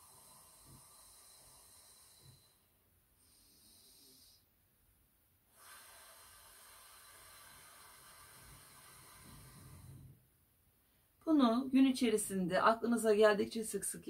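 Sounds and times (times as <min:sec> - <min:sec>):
faint steady hiss: 0:00.0 - 0:14.0
soft breathing out: 0:05.5 - 0:10.2.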